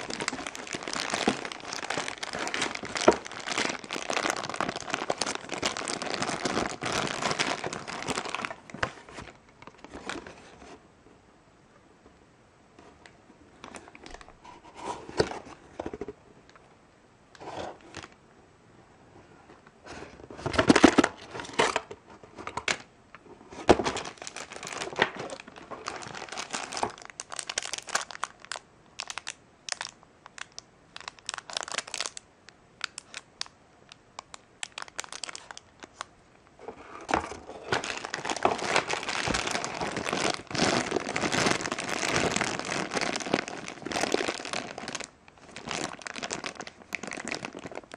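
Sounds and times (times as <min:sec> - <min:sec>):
plastic packaging crinkling: 0:00.0 - 0:10.5, 0:20.4 - 0:22.8, 0:23.6 - 0:32.2, 0:32.8 - 0:47.9
cardboard box rustling: 0:36.6 - 0:45.0.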